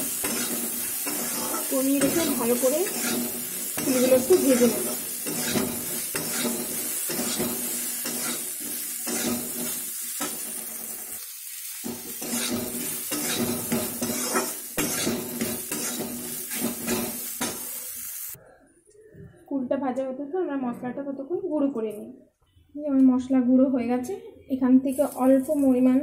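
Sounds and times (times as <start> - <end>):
food sizzling in oil: 0.0 - 18.4, 24.9 - 26.0
stirring scrapes against metal pan: 0.1 - 11.0, 11.8 - 17.8.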